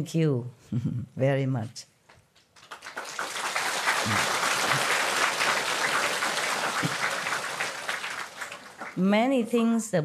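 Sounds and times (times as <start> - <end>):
audience applause: 2.6 - 9.0.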